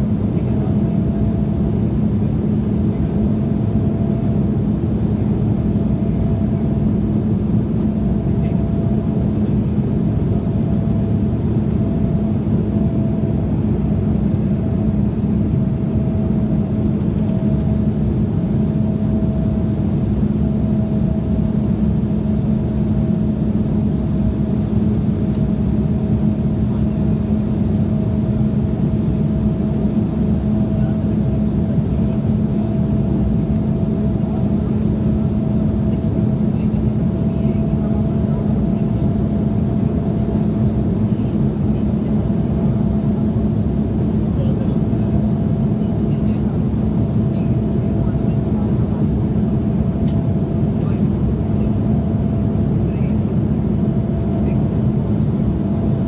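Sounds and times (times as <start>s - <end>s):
jet engines: 0.0s - 56.0s
steady low hum: 0.0s - 56.0s.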